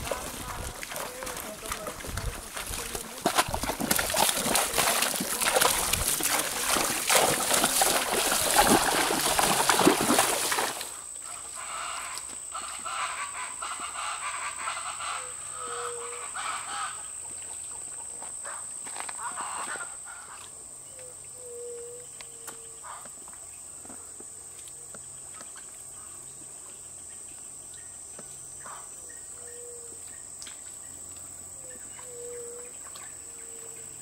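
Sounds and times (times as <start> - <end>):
hooves splashing through water: 0.0 - 12.9
faint bird calls: 19.2 - 23.1, 31.6 - 33.8.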